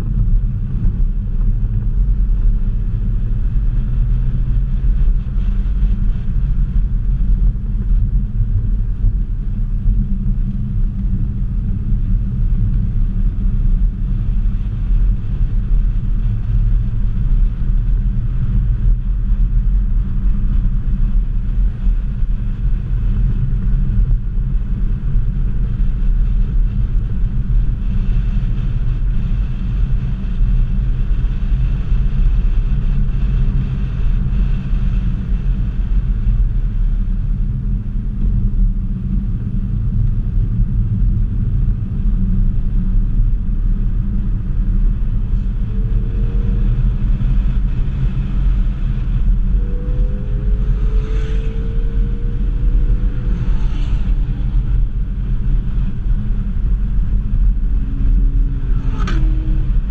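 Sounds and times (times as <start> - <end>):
car engine rumble: 0.0 - 59.9
tyre and road noise: 28.3 - 59.9.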